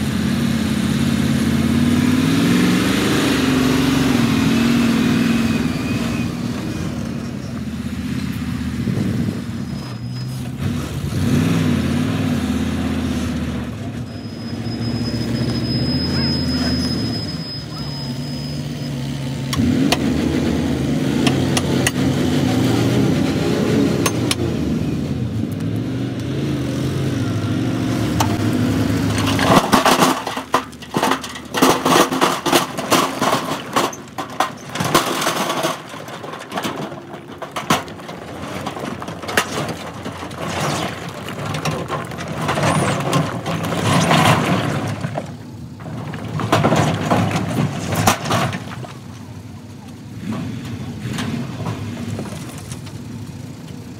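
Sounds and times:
truck engine running: 0:00.0 - 0:53.9
rocks crashing onto ground: 0:28.2 - 0:49.2.

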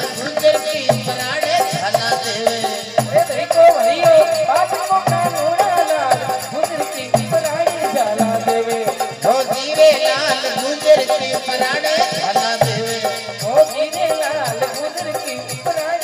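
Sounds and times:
clicking rattling percussion: 0:00.0 - 0:16.0
harmonium: 0:00.0 - 0:16.0.

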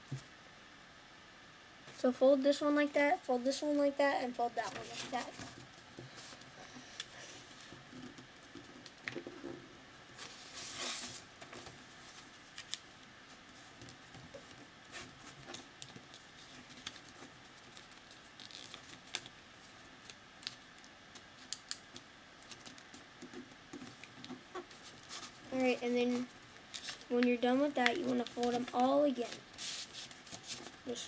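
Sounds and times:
paper being folded and creased: 0:04.6 - 0:05.5, 0:10.2 - 0:12.8, 0:13.5 - 0:21.8, 0:22.4 - 0:31.0.

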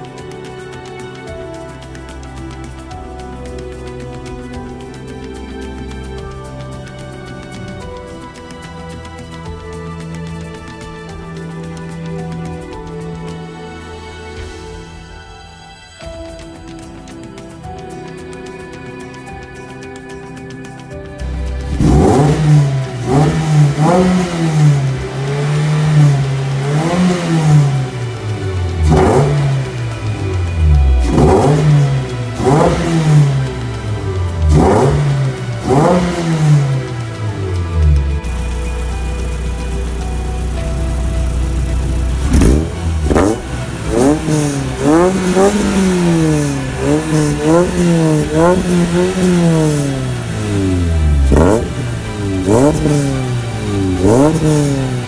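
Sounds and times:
car engine revving: 0:21.2 - 0:55.0.

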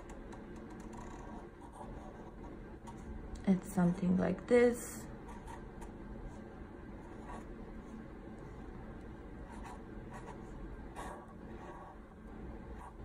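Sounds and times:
marker scratching on paper: 0:00.9 - 0:02.5, 0:07.1 - 0:07.5.

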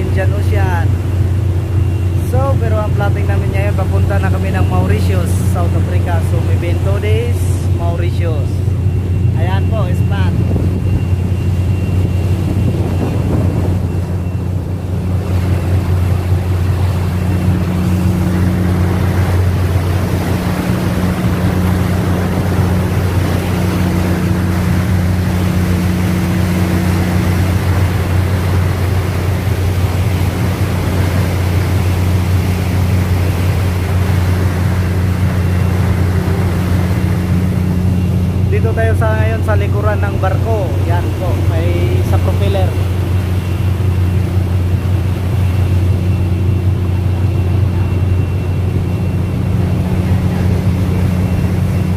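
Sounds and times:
churning wake: 0:00.0 - 0:51.9
ship engine droning: 0:00.0 - 0:51.9
wind on microphone: 0:04.3 - 0:39.7.

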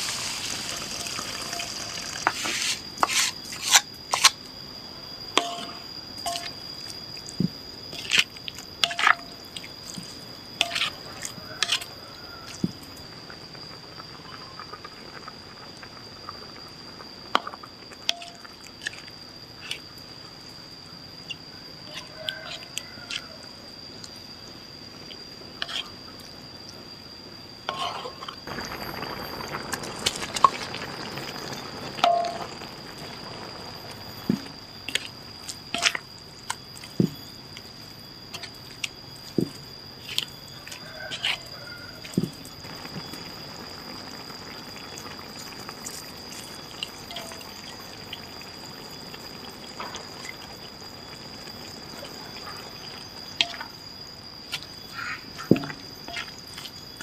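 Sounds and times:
spatula scraping in a wok: 0:00.0 - 0:04.4, 0:10.6 - 0:11.9, 0:25.6 - 0:25.9, 0:27.7 - 0:28.4
faint high whine: 0:00.0 - 0:57.0.

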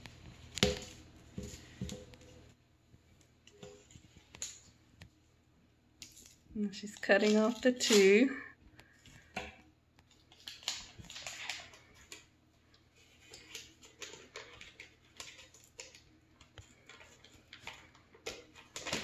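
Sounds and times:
wrapper paper crinkling: 0:10.1 - 0:12.3, 0:13.0 - 0:19.0.

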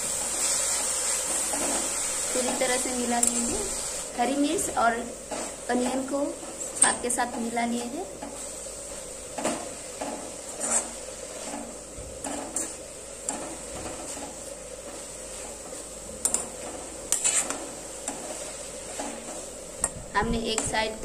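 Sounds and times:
metal spoon scraping a pot: 0:17.1 - 0:19.3.

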